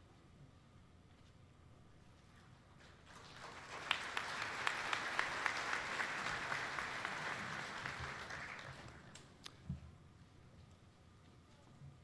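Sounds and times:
audience applauding: 3.1s - 9.2s.

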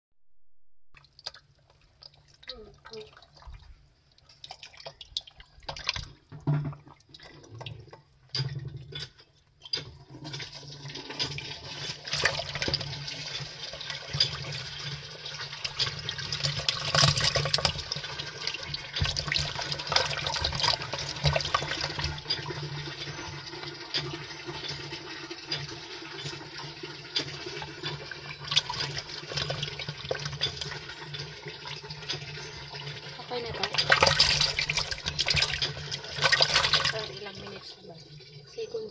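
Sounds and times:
fish splashing in water: 33.6s - 37.1s.

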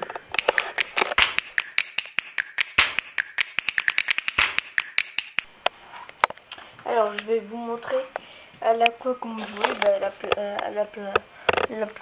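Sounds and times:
sharp clicks and taps: 0.3s - 5.5s.

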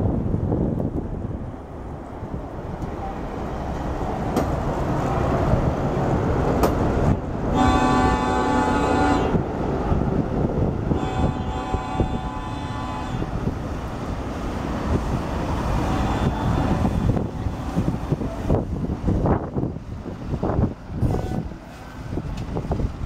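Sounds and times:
truck horn blasts: 7.5s - 9.4s, 10.9s - 13.4s, 15.8s - 18.0s, 21.0s - 21.5s.

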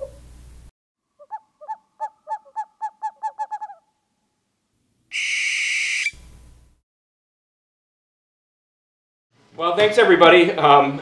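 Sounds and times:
owl hooting: 1.2s - 4.0s, 5.1s - 6.2s.

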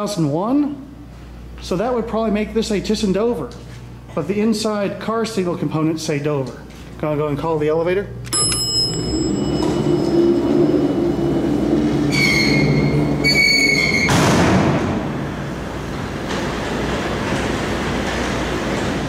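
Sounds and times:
elevator machinery hum: 0.0s - 19.0s
call button click: 8.2s - 9.7s
elevator doors and gate opening: 8.3s - 19.0s.

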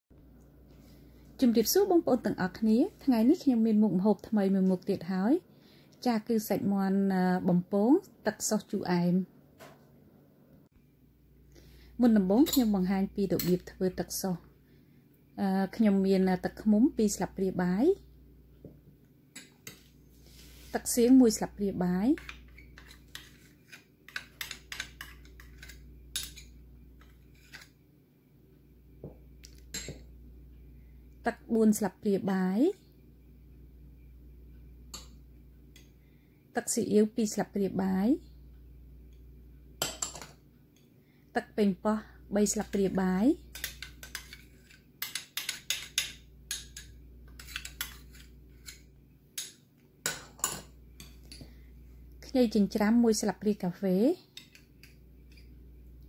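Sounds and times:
spoon scraping a glass bowl: 43.6s - 48.8s
metal spoon scraping glass bowl: 46.8s - 48.8s.

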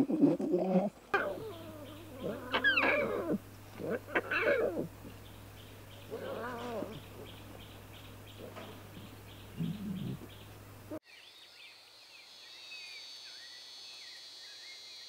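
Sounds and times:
faint steady hum: 0.0s - 11.0s
lion cubs calling: 0.6s - 11.0s.

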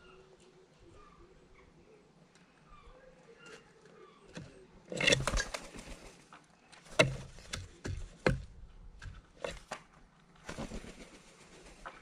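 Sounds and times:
bird wings flapping: 5.1s - 6.3s, 10.4s - 12.0s
sharp knocks on wood: 7.0s - 9.2s.

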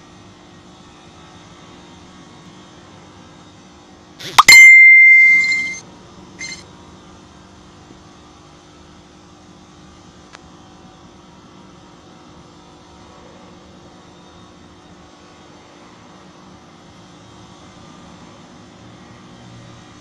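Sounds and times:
sharp click: 4.3s - 5.8s
high electronic beep: 4.4s - 5.8s, 6.4s - 6.6s.

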